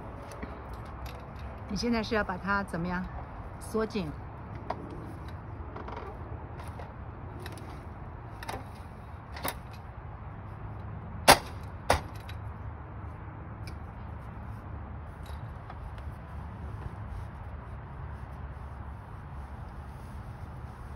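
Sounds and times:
metal hardware clicks and clacks: 4.5s - 9.9s, 11.3s - 12.5s.

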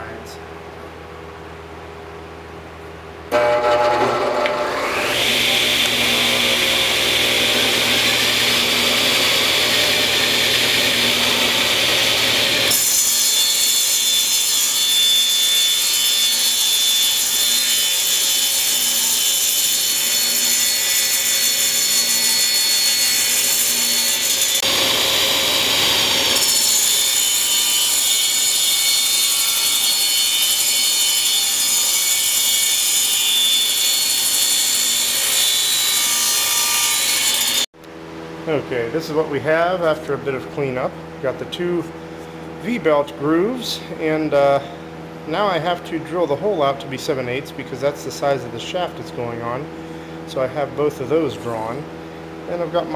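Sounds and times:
table saw cutting wood: 3.3s - 37.7s.

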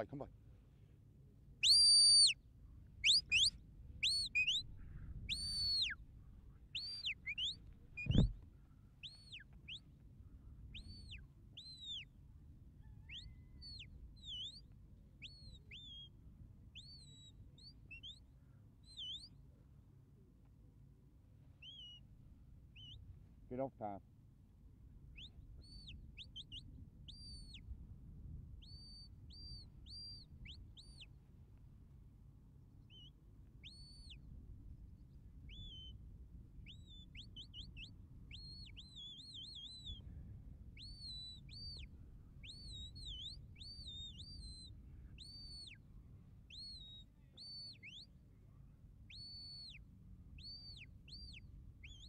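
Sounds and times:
shepherd's whistle commands: 1.6s - 2.4s.

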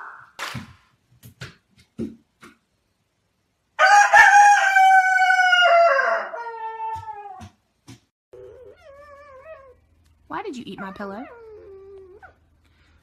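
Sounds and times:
rooster crowing: 3.8s - 7.0s.

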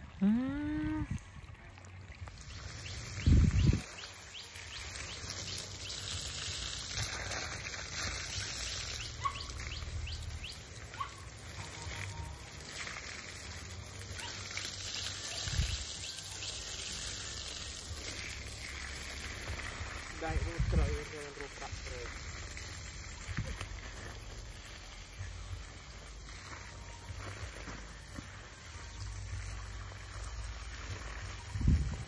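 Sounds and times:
bird chirps: 2.4s - 6.2s, 8.2s - 12.4s
steady hiss: 2.4s - 11.5s, 12.1s - 32.0s.

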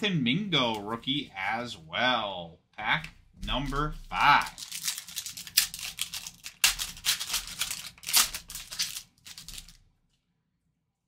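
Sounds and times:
foil wrapper tearing and crinkling: 4.2s - 9.8s.

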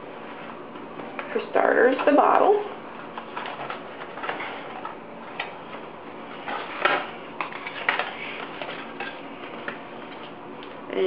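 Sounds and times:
rummaging in cardboard box: 1.9s - 10.4s.

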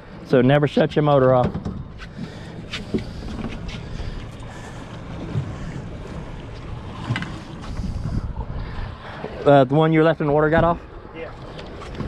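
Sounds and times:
wind on microphone: 6.8s - 9.2s.

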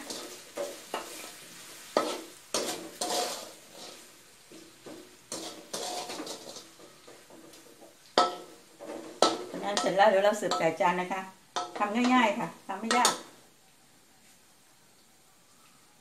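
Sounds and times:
metal spatula scraping a wok: 0.0s - 10.8s.

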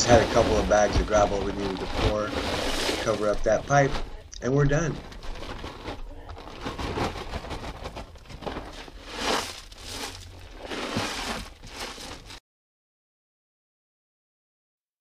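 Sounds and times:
gravel being scraped by hand: 0.0s - 3.9s, 8.7s - 12.4s
plastic bag crinkling: 0.0s - 4.1s, 4.8s - 12.4s.

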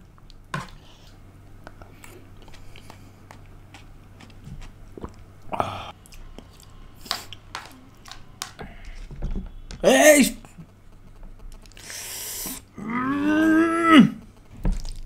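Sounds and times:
chewing noodles: 1.7s - 8.2s, 10.6s - 13.4s.

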